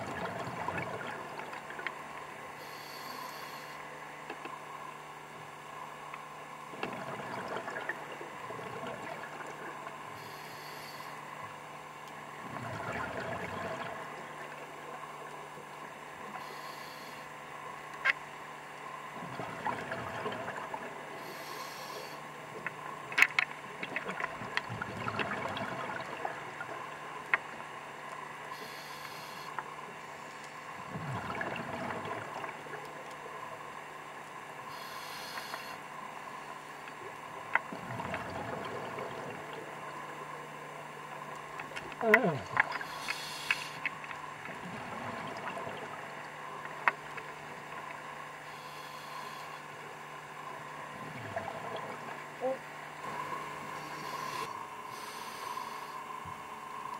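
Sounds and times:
exhaled air bubbling: 0:00.0 - 0:03.7, 0:06.6 - 0:56.9
regulator inhalation hiss: 0:02.6 - 0:03.8, 0:10.2 - 0:11.2, 0:16.4 - 0:17.2, 0:21.2 - 0:22.2, 0:28.6 - 0:29.5, 0:34.7 - 0:35.8, 0:42.8 - 0:43.8, 0:48.5 - 0:49.6, 0:53.8 - 0:56.0.

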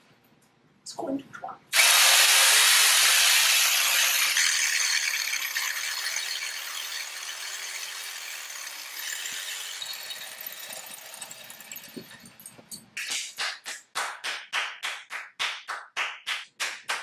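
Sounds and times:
loud rushing hiss: 0:01.7 - 0:03.8.

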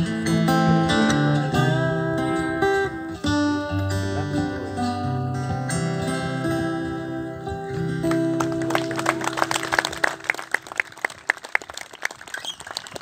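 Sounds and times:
audience hand clapping: 0:08.1 - 0:13.0.

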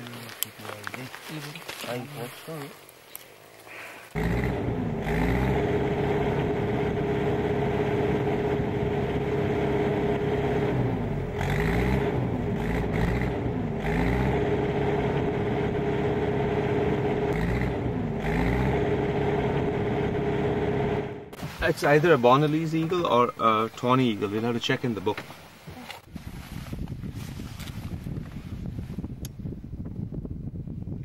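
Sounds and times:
road noise: 0:00.0 - 0:26.1
vehicle engine running: 0:04.1 - 0:21.6.

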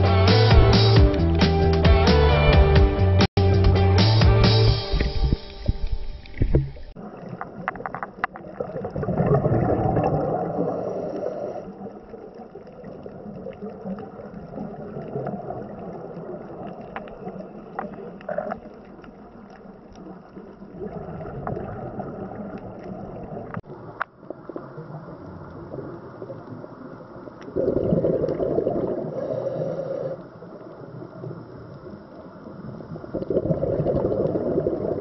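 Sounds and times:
gurgling bubbles: 0:04.8 - 0:30.1, 0:32.5 - 0:35.0.

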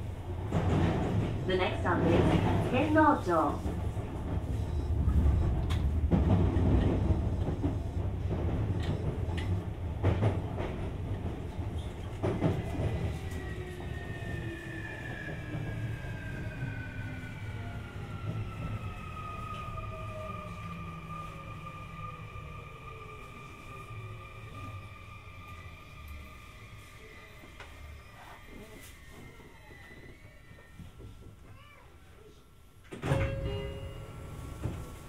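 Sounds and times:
rail-joint clacks: 0:00.4 - 0:13.3, 0:32.8 - 0:35.0.

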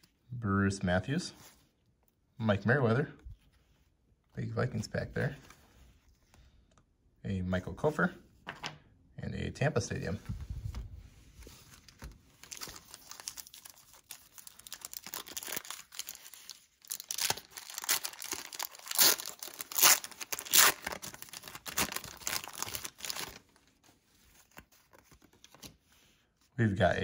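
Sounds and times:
paper wrapper tearing and crinkling: 0:11.8 - 0:23.6.

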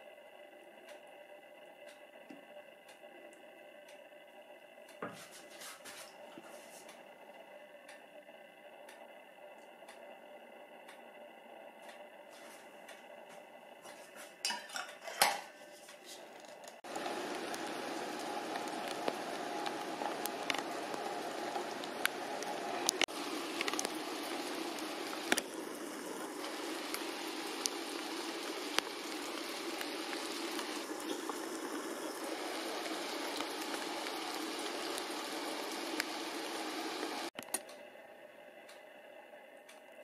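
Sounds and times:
rain falling on foliage: 0:16.9 - 0:37.3.

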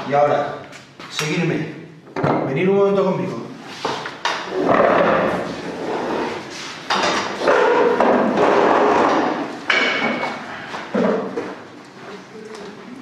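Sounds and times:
furniture scraping: 0:03.6 - 0:11.7
knocks on tables: 0:06.9 - 0:11.3.

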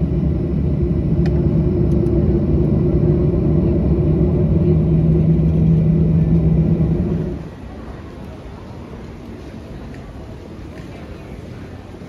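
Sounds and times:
steady hum: 0:00.0 - 0:08.1
airplane cabin engine rumble: 0:00.0 - 0:12.0.

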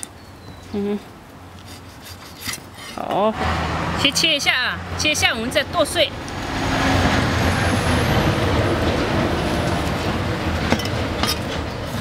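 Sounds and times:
passing vehicle engine and road noise: 0:02.9 - 0:12.0.

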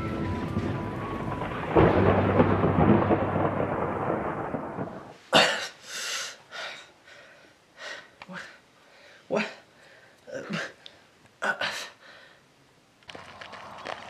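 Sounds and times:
deep rumbling boom: 0:00.0 - 0:05.1.

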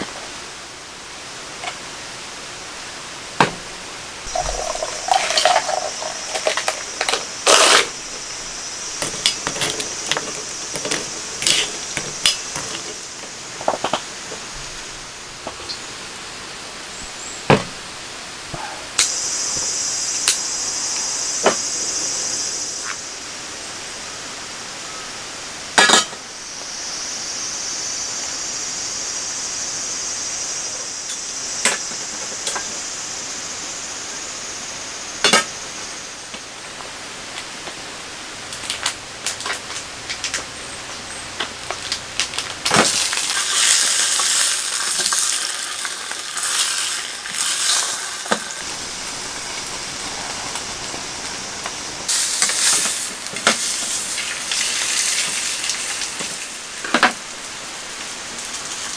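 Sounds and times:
gas stove burner hissing: 0:04.2 - 0:15.5, 0:18.6 - 0:36.5, 0:42.6 - 0:58.9
frying pan set on stove: 0:04.3 - 0:14.5, 0:25.7 - 0:26.6, 0:41.4 - 0:57.2.

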